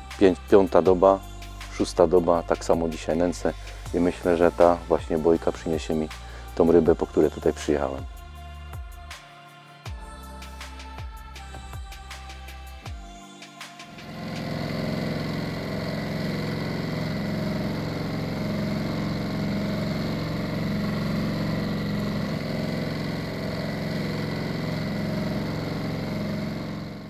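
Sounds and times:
outboard motor droning: 0:13.9 - 0:27.0.

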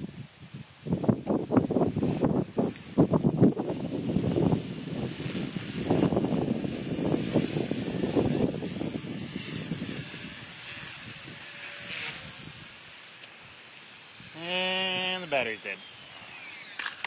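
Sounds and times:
low wind buffeting: 0:00.0 - 0:13.0
toy helicopter motor whine: 0:00.7 - 0:17.0.

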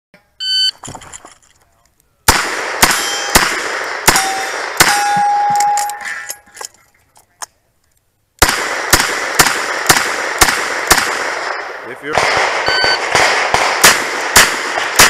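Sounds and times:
metal target ringing: 0:02.8 - 0:06.5.

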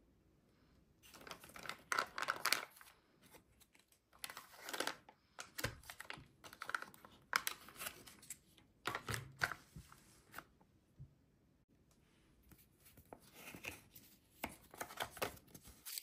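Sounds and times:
plastic packaging crinkling: 0:01.0 - 0:02.9, 0:03.6 - 0:09.6.

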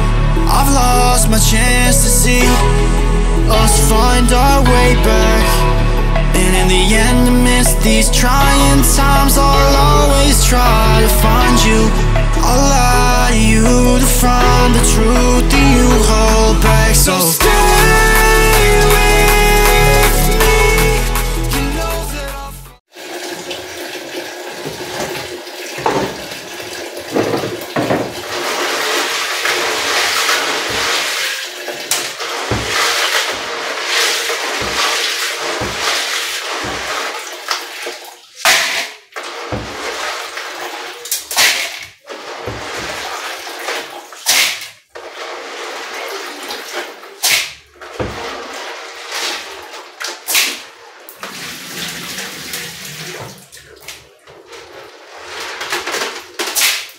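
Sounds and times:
water splashes: 0:22.8 - 0:56.9
tap water running into basin: 0:22.9 - 0:56.9
hands washing grains in water: 0:23.0 - 0:56.9.

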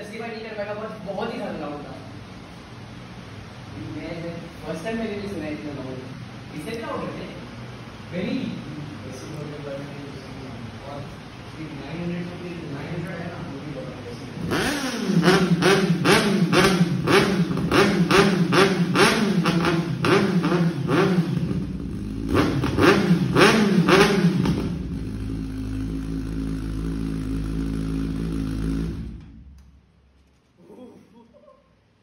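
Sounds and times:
motorcycle engine revving and idling: 0:13.5 - 0:29.6.

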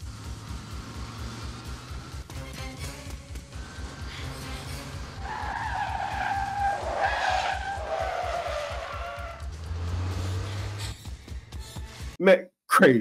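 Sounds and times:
car tyres squealing: 0:03.6 - 0:11.0.

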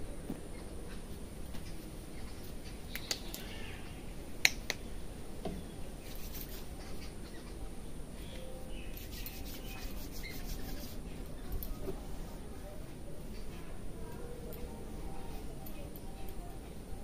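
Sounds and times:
hair cracking snaps: 0:02.9 - 0:03.5, 0:04.4 - 0:04.8
fingers rubbing hair: 0:06.0 - 0:06.7, 0:08.9 - 0:11.0.

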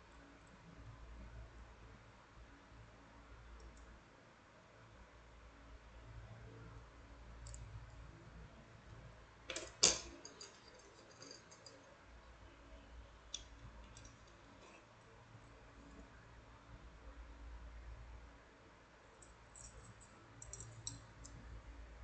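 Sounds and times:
metal wire puzzle pieces clicking: 0:09.5 - 0:11.8, 0:19.2 - 0:21.4.

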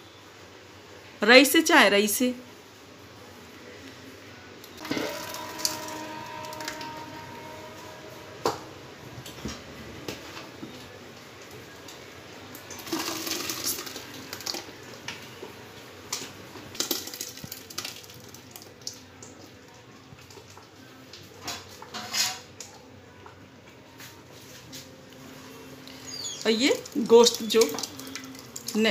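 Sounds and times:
metal vessels knocking: 0:04.8 - 0:07.8.

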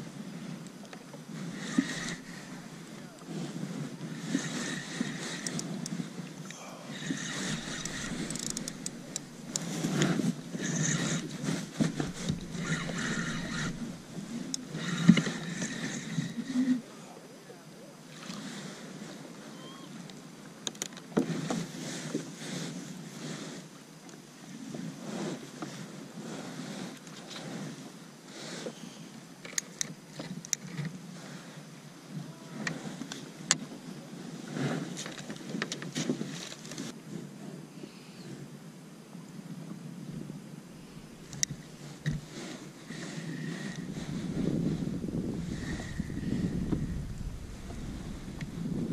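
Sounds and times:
water lapping against hull: 0:00.0 - 0:17.1, 0:39.4 - 0:48.9
wind on microphone: 0:01.3 - 0:16.8, 0:39.4 - 0:48.9
fishing reel cranking: 0:01.5 - 0:02.6, 0:04.2 - 0:06.0, 0:06.9 - 0:16.6
small clicks: 0:07.2 - 0:16.0.

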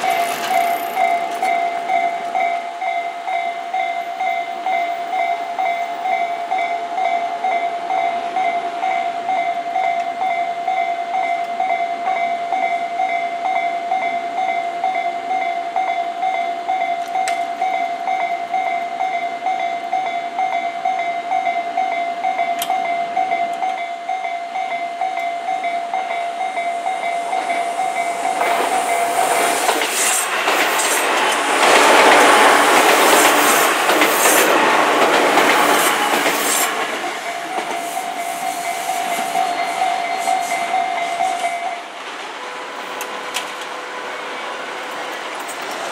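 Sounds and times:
train wheels clattering on rails: 0:00.0 - 0:06.3, 0:22.2 - 0:42.3
railway crossing electronic bell: 0:00.0 - 0:45.9.

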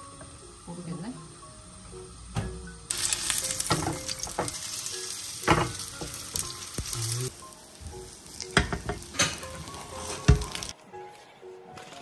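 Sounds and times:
pancake sizzling in frying pan: 0:02.9 - 0:10.8.

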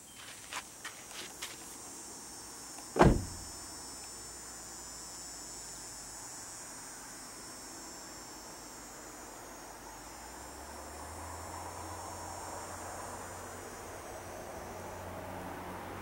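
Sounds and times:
steady high-pitched hiss: 0:00.0 - 0:16.0
loud short thump: 0:03.0 - 0:03.5.

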